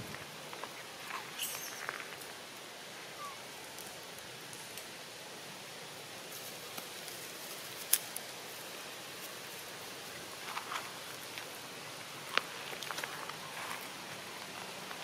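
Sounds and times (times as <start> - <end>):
steady hiss: 0.0 - 15.0
dry leaves crackling and rustling: 6.3 - 15.0.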